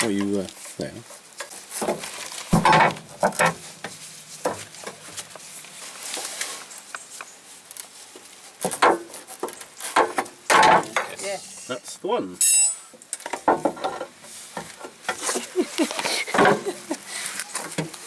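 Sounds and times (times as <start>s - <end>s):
metal clinks of hand tools: 12.4s - 12.9s.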